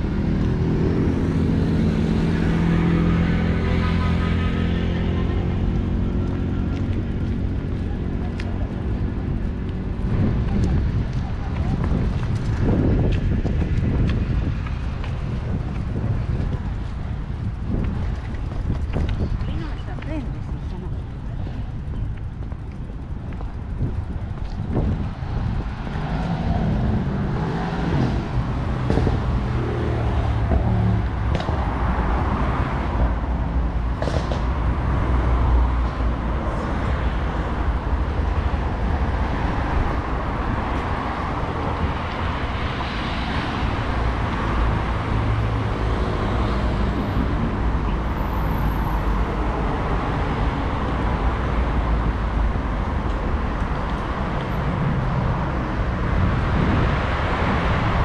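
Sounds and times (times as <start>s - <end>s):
cars going by: 0.0s - 58.0s
close car engines: 0.0s - 58.0s.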